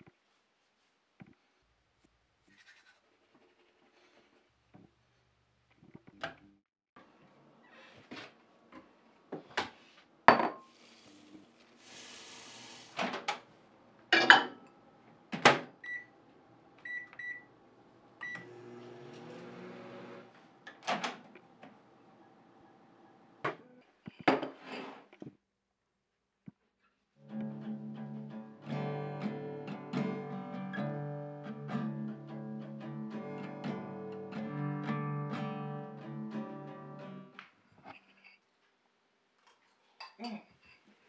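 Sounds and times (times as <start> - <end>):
microwave oven humming: 16.0 - 23.4.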